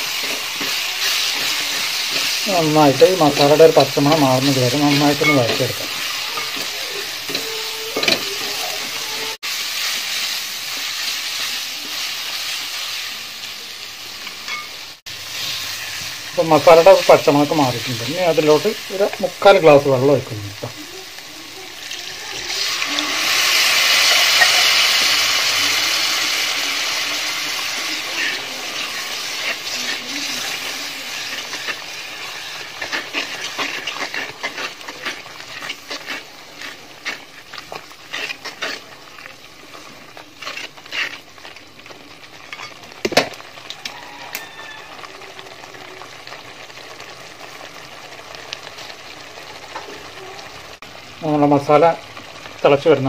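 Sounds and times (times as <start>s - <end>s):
wooden spatula scraping pot: 0.0s - 9.4s, 22.4s - 42.9s
water sizzling in hot oil: 0.0s - 53.0s.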